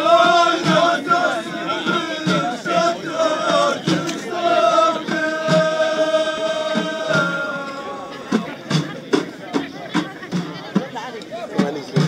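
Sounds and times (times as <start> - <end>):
chorus singing in unison: 0.0 - 8.9
low drum beats: 0.0 - 12.0.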